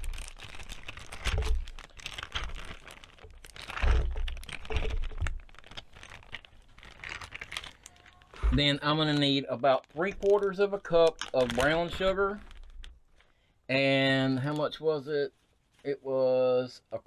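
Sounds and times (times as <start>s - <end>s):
handling noises: 0.0s - 13.3s
plastic bag crinkling: 0.0s - 13.4s.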